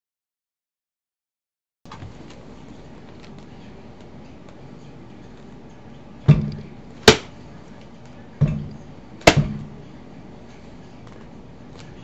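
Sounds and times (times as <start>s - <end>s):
heavy knocks: 8.4s - 9.8s.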